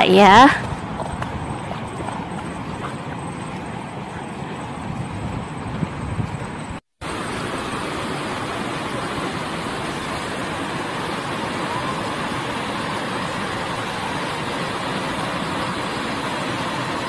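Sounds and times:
river water rushing over rocks: 7.0 - 17.0.

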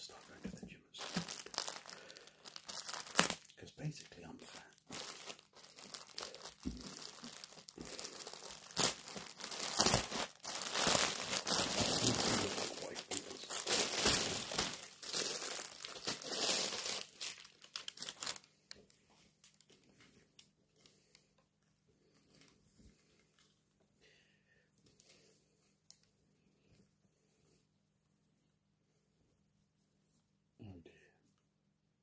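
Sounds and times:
plastic bag crinkling: 1.0 - 18.5.

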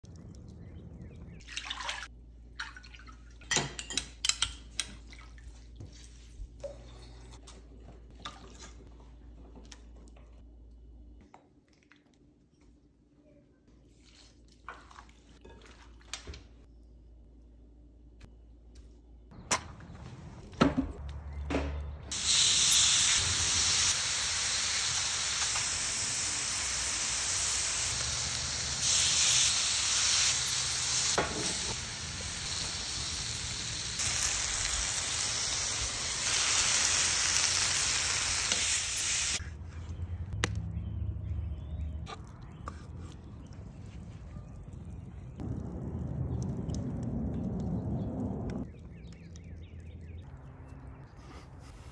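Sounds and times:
meat sizzling on grill: 22.1 - 39.4.

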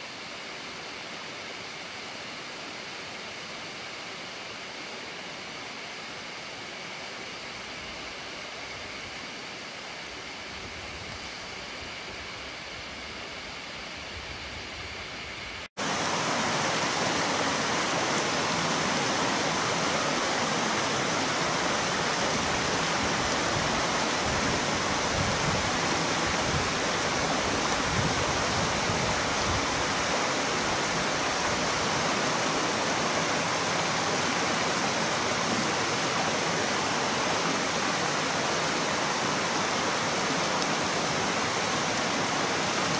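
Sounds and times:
waterfall rushing: 15.8 - 42.9.

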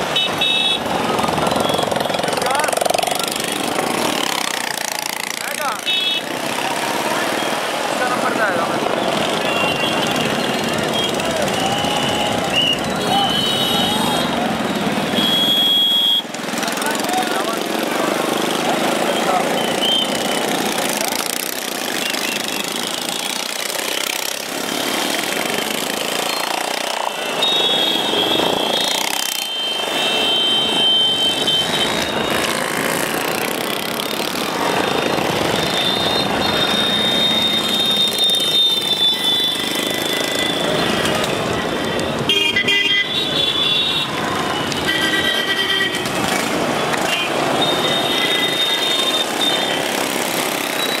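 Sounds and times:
vehicle horns honking: 0.0 - 0.9, 5.8 - 6.4, 9.0 - 16.3, 27.1 - 32.5, 35.6 - 46.3, 46.9 - 49.9
road traffic din: 0.0 - 51.0.

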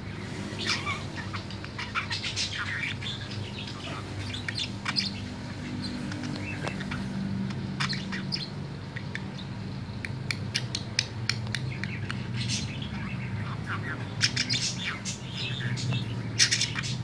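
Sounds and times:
budgerigar warbling: 0.6 - 7.1.

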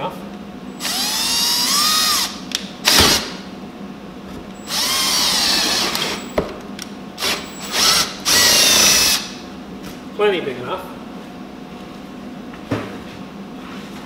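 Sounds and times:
cordless drill whining: 0.8 - 3.3, 4.6 - 6.4, 7.2 - 9.4.

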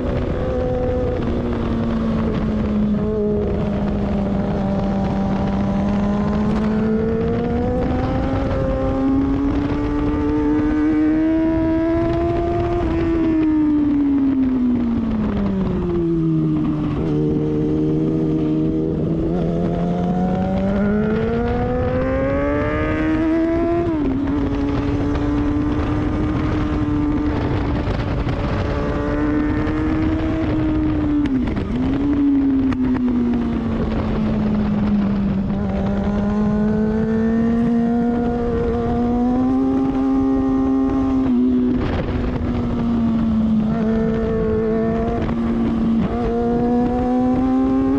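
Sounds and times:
motorcycle engine revving: 0.0 - 47.9
wind noise: 0.0 - 47.9.

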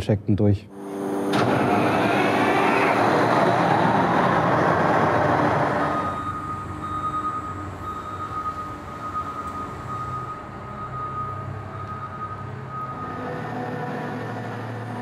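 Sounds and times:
diesel engine working under load: 0.8 - 15.0.

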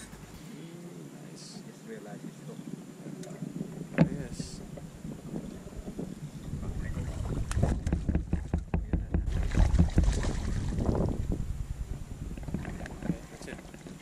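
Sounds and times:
wind buffeting microphone: 0.0 - 14.0
fish splashing and thrashing in water: 7.0 - 11.0.

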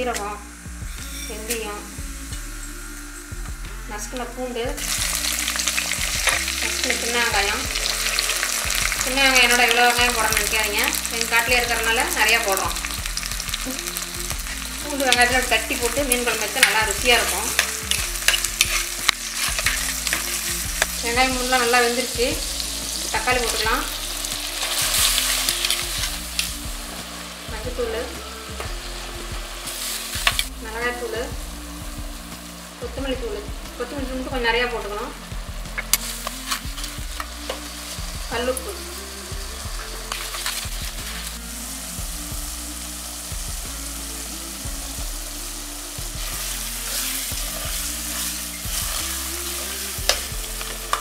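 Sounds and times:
soft background music: 0.0 - 51.0
vegetables sizzling in oil: 0.0 - 51.0
spoon stirring: 4.8 - 27.2.

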